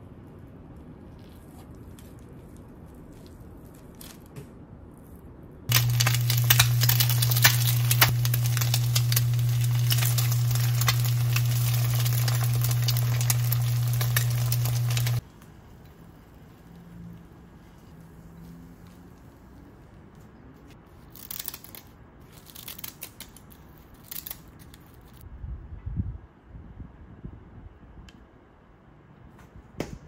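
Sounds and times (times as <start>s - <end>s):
eggs sizzling in oil: 5.7s - 15.2s
steady low hum: 5.7s - 15.2s.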